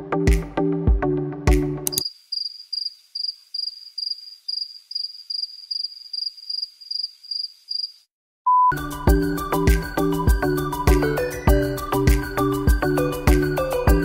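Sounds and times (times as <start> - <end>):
background music: 0.0 - 2.0, 8.7 - 14.0
cricket chirping: 1.9 - 8.1.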